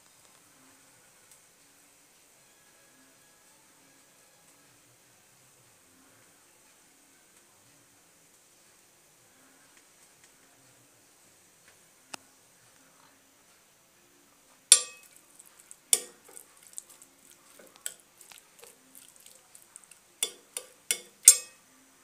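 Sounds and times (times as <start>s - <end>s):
metal spoon clinking on a plate: 14.7s - 15.2s, 15.9s - 21.6s.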